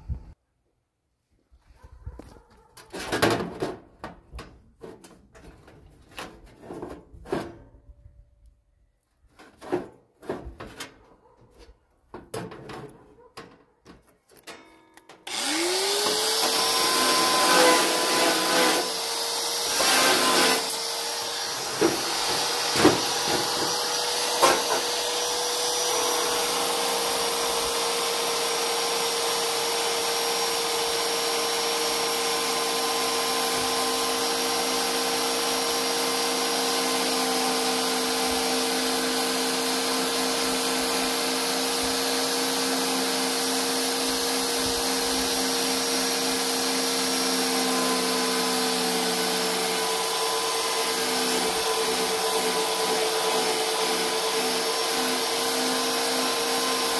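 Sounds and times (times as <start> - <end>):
electric motor whirring: 15.3 - 26.7.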